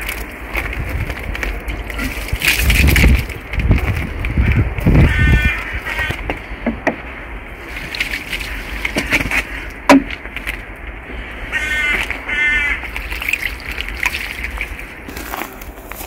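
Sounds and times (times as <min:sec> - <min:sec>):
crow cawing: 0:04.4 - 0:06.5, 0:11.2 - 0:13.0.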